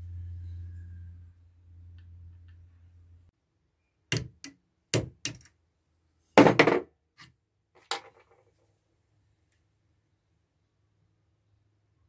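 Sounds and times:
hand tools knocking on workbench: 6.4 - 6.9.

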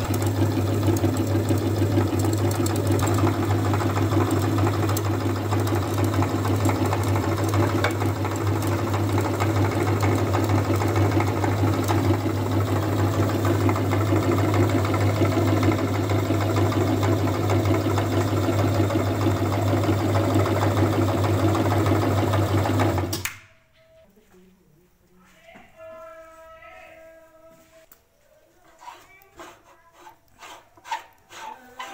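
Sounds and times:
electric meat grinder running: 0.0 - 23.2.

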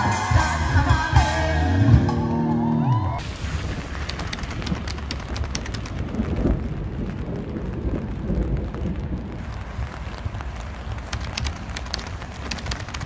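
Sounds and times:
low steady rain rumble: 3.2 - 13.0
raindrops ticking: 3.2 - 13.0.

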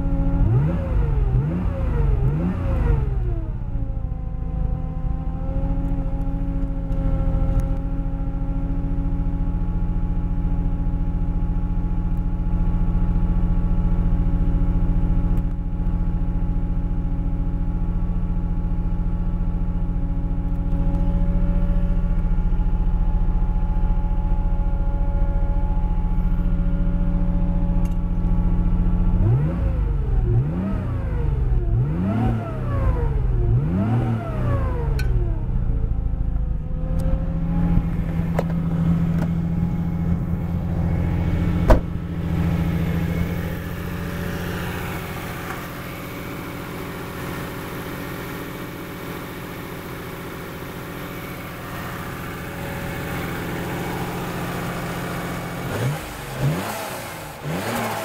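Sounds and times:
car engine revving: 0.0 - 7.8, 20.5 - 49.2, 50.2 - 58.0.

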